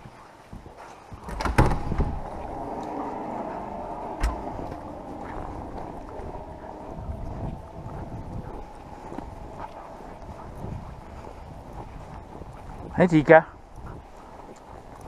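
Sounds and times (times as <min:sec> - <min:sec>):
steady rushing noise: 0:01.0 - 0:15.0
door banging shut: 0:01.2 - 0:02.2.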